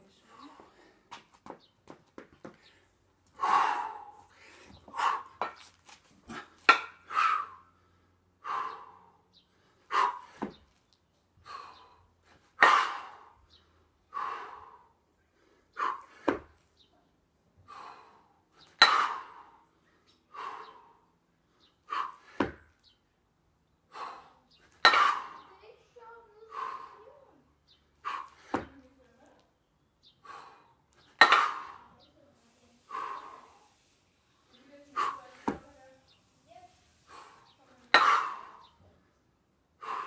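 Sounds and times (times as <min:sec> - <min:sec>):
person breathing hard: 0:02.6 - 0:05.4, 0:11.4 - 0:16.3, 0:17.6 - 0:22.5, 0:26.4 - 0:27.3, 0:32.8 - 0:34.0, 0:39.8 - 0:40.0.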